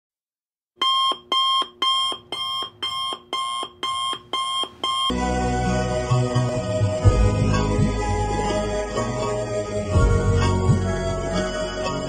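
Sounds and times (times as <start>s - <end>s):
electronic alarm beeping: 0.8s - 5.2s
music: 5.1s - 12.0s.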